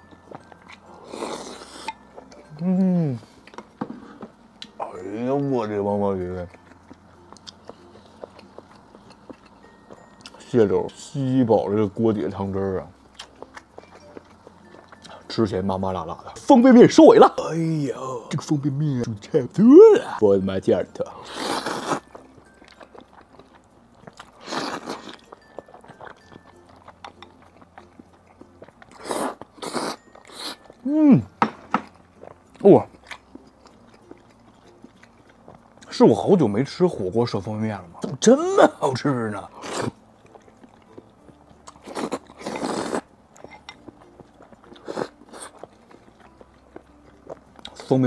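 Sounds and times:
soft chewing: 0:00.0 - 0:11.1, 0:12.1 - 0:16.4, 0:21.0 - 0:30.9, 0:31.8 - 0:37.1, 0:38.9 - 0:48.0
person slurping noodles: 0:41.8 - 0:43.0.

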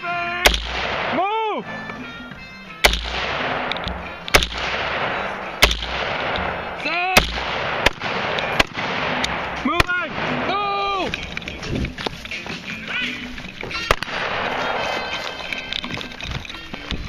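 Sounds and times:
rifle shots with echo: 0:00.4 - 0:01.4, 0:02.8 - 0:11.0, 0:13.9 - 0:15.1.

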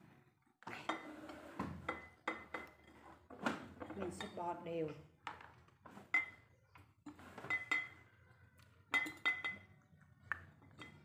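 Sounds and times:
glass jar clinking: 0:07.4 - 0:08.0, 0:08.9 - 0:09.8.

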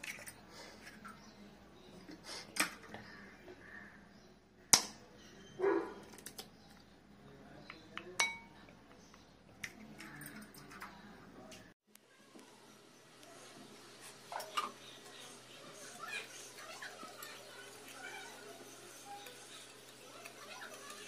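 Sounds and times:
knife clinking on ceramic bowl: 0:08.2 - 0:08.5.

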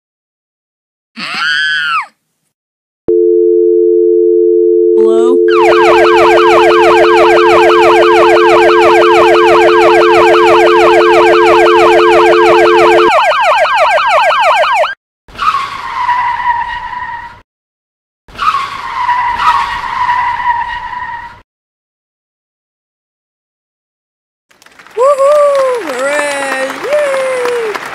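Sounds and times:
held tones: 0:03.1 - 0:13.1
yelp siren: 0:05.0 - 0:15.0.

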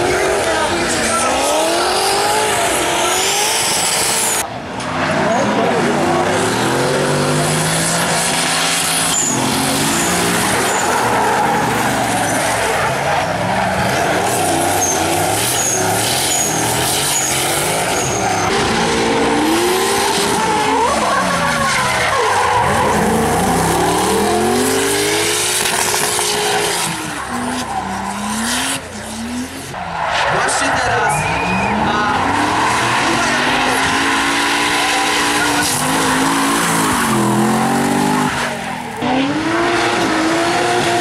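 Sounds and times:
car engines revving: 0:00.0 - 0:41.0
tyres screeching: 0:06.4 - 0:39.1.

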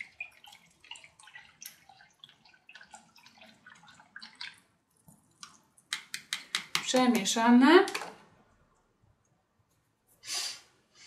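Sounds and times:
water dripping and splashing: 0:00.0 - 0:07.3.

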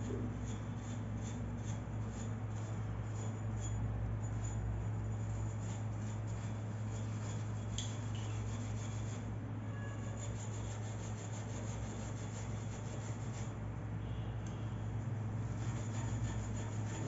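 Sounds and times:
steel wool scrubbing metal: 0:00.0 - 0:13.6, 0:15.4 - 0:17.0
steady low hum: 0:00.0 - 0:17.0.

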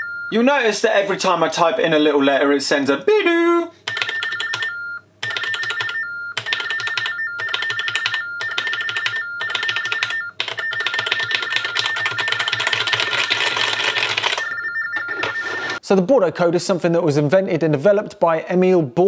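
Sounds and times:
warbling two-pitch beeps: 0:14.4 - 0:15.8.

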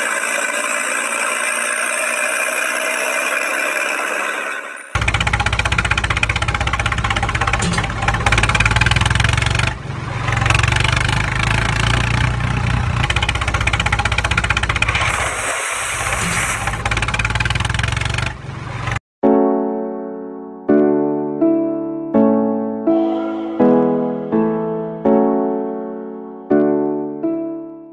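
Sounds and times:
tractor engine chugging: 0:00.0 - 0:19.0.

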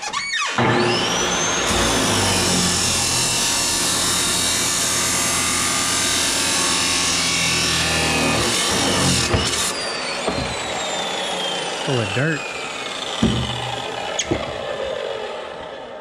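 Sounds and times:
saw grinding through steel pipe: 0:00.0 - 0:16.0
motor hum: 0:06.7 - 0:16.0.

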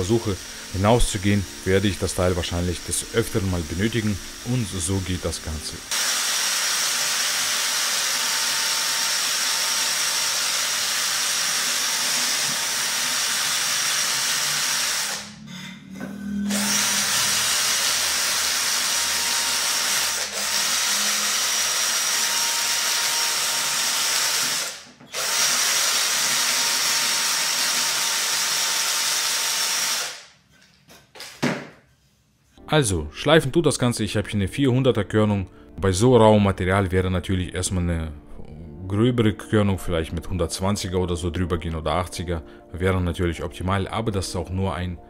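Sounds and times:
drill spinning sanding wheel: 0:00.0 - 0:15.4, 0:16.5 - 0:30.2.

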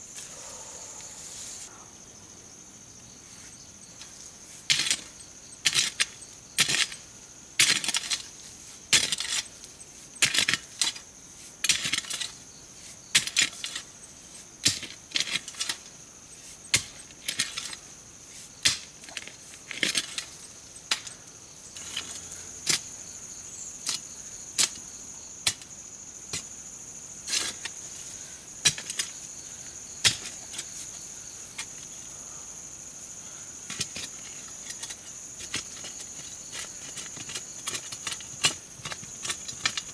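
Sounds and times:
crickets chirring: 0:00.0 - 0:39.9
hoe chopping into soil: 0:28.6 - 0:29.2, 0:30.0 - 0:30.6.

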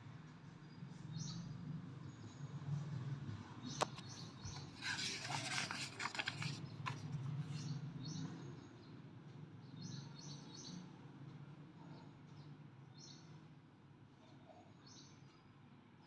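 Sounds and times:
book page turning: 0:04.5 - 0:07.6
page click: 0:04.6 - 0:07.1.

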